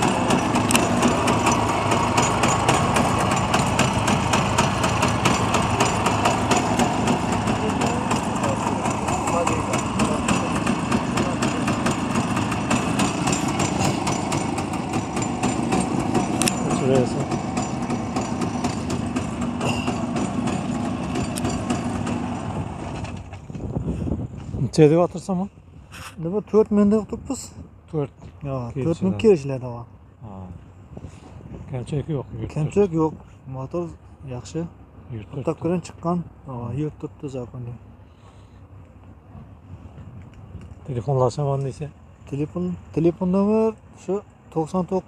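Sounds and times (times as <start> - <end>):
small engine idling: 0.0 - 23.7.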